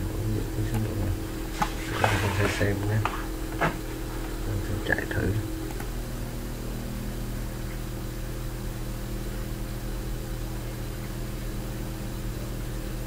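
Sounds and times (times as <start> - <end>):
low electrical hum: 0.0 - 13.0
even hiss: 0.2 - 3.4.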